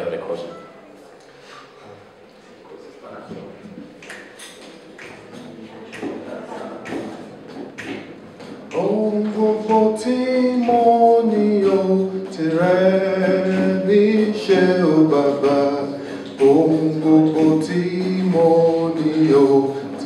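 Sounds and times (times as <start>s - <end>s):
man singing a cappella: 8.7s - 20.0s.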